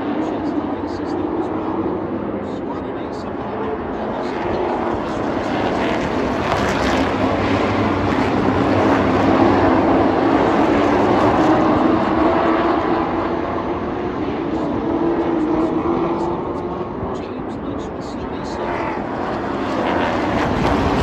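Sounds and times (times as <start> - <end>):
race truck engines droning: 0.0 - 21.0.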